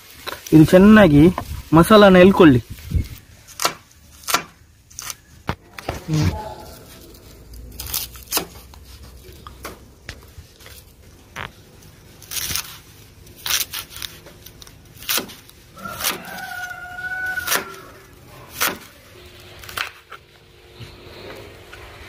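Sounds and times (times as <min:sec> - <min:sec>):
rooster crowing: 0:15.7 - 0:18.4.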